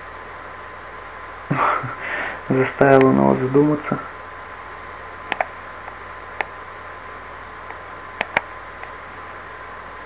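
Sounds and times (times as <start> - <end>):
microphone hiss: 0.0 - 10.0
computer mouse clicking: 5.3 - 6.5, 7.7 - 8.9.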